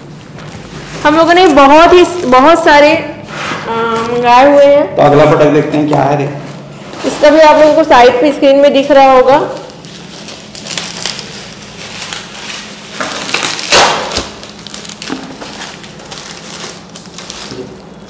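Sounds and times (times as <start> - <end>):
bubble wrap crinkling: 0.0 - 3.0, 6.9 - 18.0.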